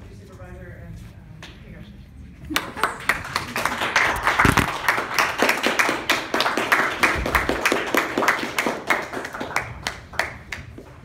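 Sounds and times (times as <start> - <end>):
people applauding: 2.5 - 10.8.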